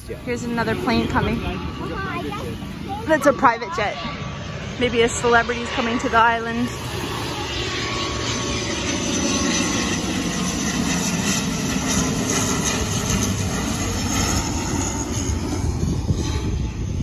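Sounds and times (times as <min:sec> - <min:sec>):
turboprop airplane droning overhead: 0:00.0 - 0:17.0.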